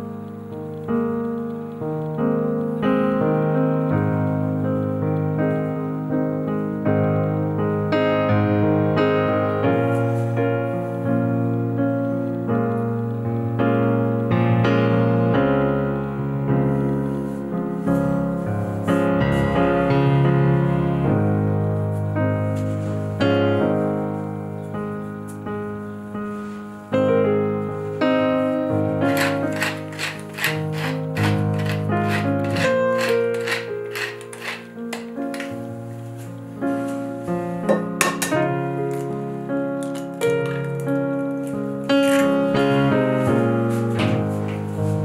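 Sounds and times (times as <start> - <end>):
gentle piano melody: 0.0 - 45.0
short crisp strokes: 29.1 - 35.6.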